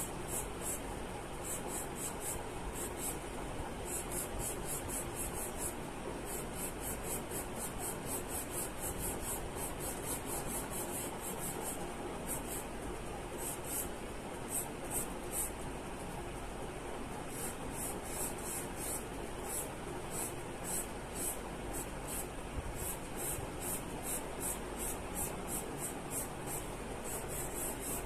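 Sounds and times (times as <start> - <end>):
steady hiss: 0.0 - 15.7, 17.2 - 28.0
pencil scratching on paper: 1.4 - 3.2, 3.8 - 12.7, 13.4 - 13.9, 17.4 - 28.0.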